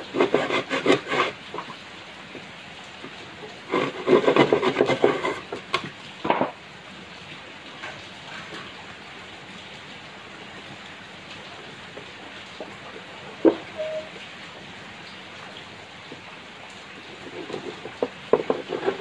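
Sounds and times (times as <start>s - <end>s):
hand saw cutting wood: 0.0s - 1.7s, 3.6s - 5.6s, 17.2s - 19.0s
rain hiss: 0.0s - 19.0s
sharp wooden knocks: 3.8s - 6.6s, 18.0s - 19.0s.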